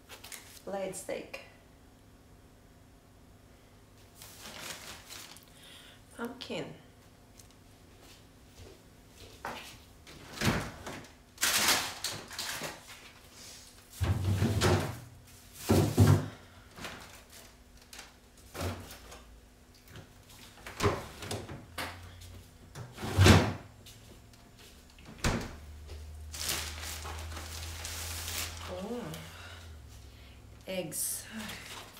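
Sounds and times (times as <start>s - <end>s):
fridge door opening and shutting: 10.1s - 12.9s, 14.0s - 17.1s, 19.9s - 22.0s, 22.7s - 23.7s, 25.0s - 25.7s
groceries knocking on shelves: 14.0s - 17.1s.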